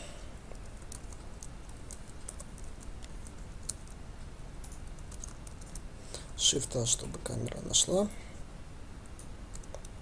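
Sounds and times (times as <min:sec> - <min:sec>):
low steady hum: 0:00.0 - 0:10.0
computer keyboard clicks: 0:00.6 - 0:04.0, 0:04.6 - 0:05.9, 0:09.2 - 0:10.0.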